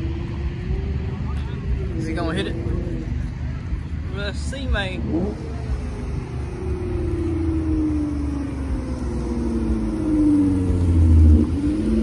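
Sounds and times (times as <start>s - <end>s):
car driving slowly by: 0.0s - 12.0s.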